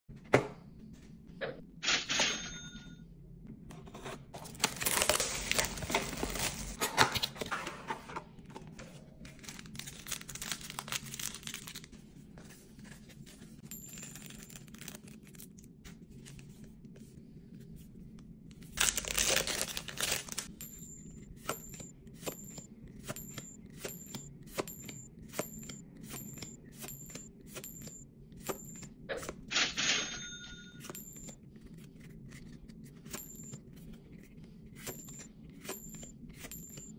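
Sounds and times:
foil packs tearing and crinkling: 4.5s - 6.8s, 9.3s - 11.9s, 18.8s - 20.5s.

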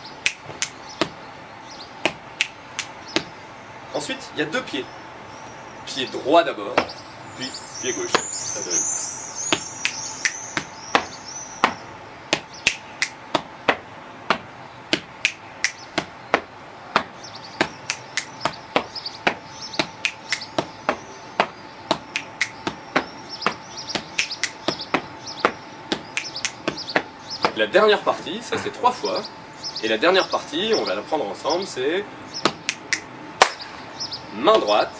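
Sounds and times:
birds chirping: 0.0s - 34.9s
hand slaps on chest: 0.2s - 1.2s, 2.1s - 3.3s, 9.5s - 27.6s, 32.4s - 33.7s
finger clicks: 2.4s - 3.3s, 9.5s - 11.8s, 12.6s - 13.2s, 15.2s - 16.1s, 17.6s - 18.6s, 19.8s - 20.7s, 21.4s - 23.1s, 24.0s - 27.6s, 32.5s - 33.6s
feet stamping: 15.9s - 27.6s.

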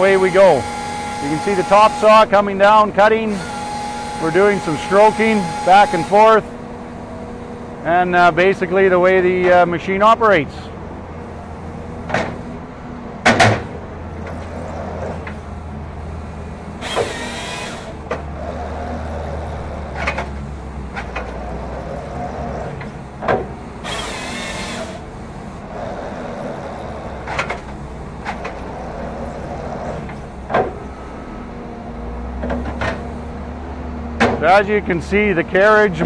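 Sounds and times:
low engine hum: 4.2s - 36.0s
metal clunks: 12.0s - 12.6s, 13.2s - 14.5s, 19.9s - 21.4s, 22.7s - 23.6s, 27.2s - 28.7s, 30.0s - 31.0s, 32.4s - 33.1s, 34.2s - 34.5s
sharp hydraulic hisses: 16.8s - 18.0s.

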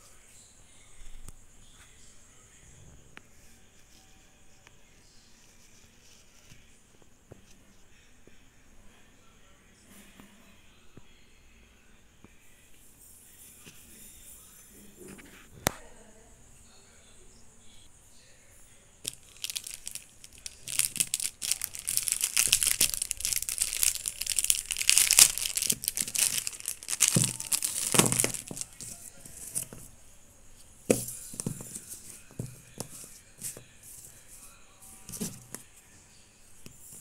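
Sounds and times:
plastic wrapping crinkling: 19.1s - 29.8s.

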